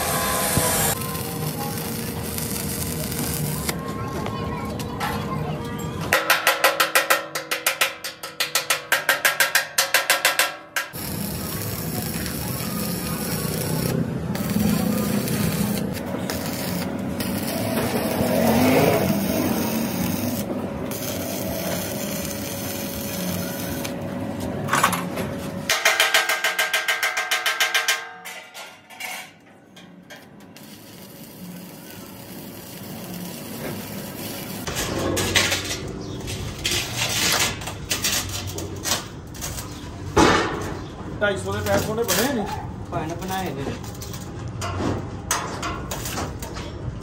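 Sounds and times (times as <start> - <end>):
welding arc crackle and hiss: 0.0 - 3.8, 10.9 - 24.0, 30.5 - 34.8, 36.5 - 39.9, 41.4 - 42.4, 45.9 - 46.5.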